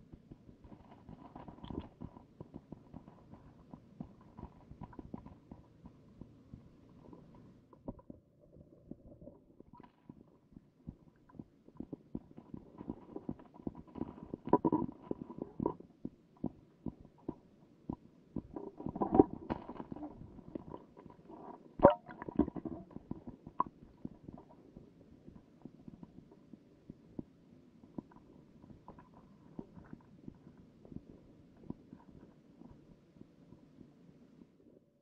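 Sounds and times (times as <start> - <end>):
low underwater rumbling: 5.9 - 24.6
muffled underwater knocks: 21.8 - 23.7.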